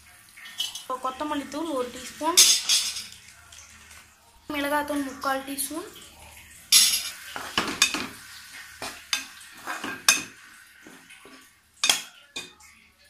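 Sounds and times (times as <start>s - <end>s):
faint frying sizzle: 0.0s - 13.0s
metal spatula scraping a pan: 6.9s - 12.1s.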